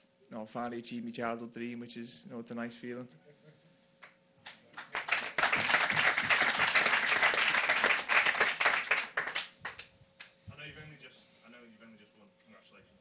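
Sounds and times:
group applause: 4.5s - 9.9s.

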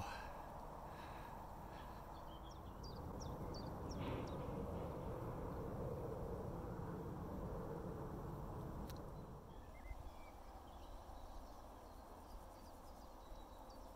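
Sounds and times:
low outdoor rumble: 0.0s - 13.9s
bird chirping: 2.1s - 4.4s, 9.1s - 13.9s.

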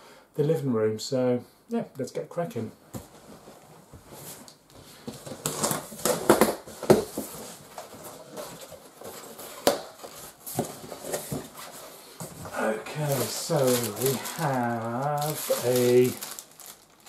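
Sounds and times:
cardboard flaps scraping: 3.0s - 16.3s
packaging rustling: 4.3s - 17.0s.

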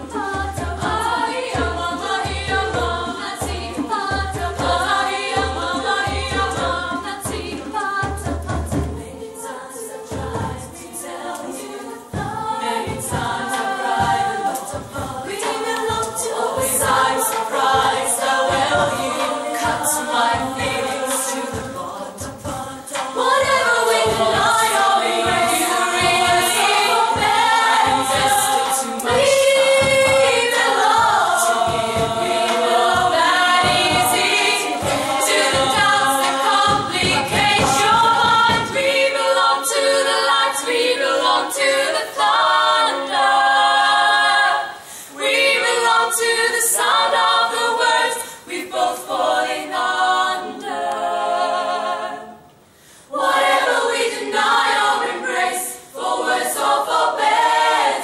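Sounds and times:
women singing in chorus: 0.0s - 58.0s
bass drum beat: 12.2s - 39.1s.

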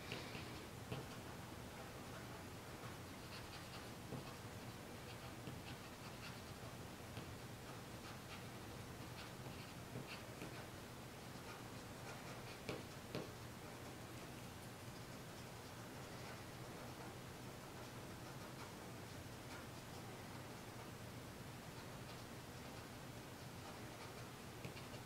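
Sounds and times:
light tapping on paper: 0.0s - 1.2s, 2.8s - 4.4s, 7.1s - 10.7s, 11.4s - 17.0s, 23.6s - 25.0s.

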